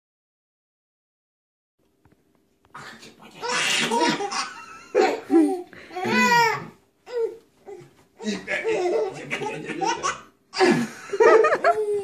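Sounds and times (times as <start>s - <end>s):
baby laughing: 3.4s - 12.0s.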